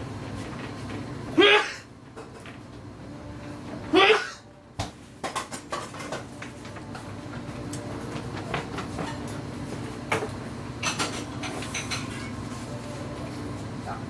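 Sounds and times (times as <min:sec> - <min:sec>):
low running hum: 0:00.0 - 0:14.0.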